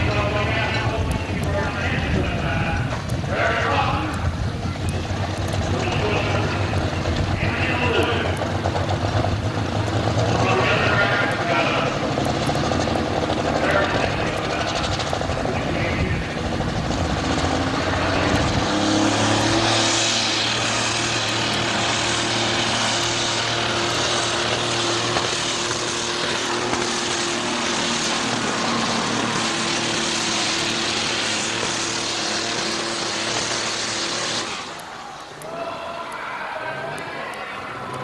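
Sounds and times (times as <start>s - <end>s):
tractor engine roaring under load: 0.0s - 38.0s.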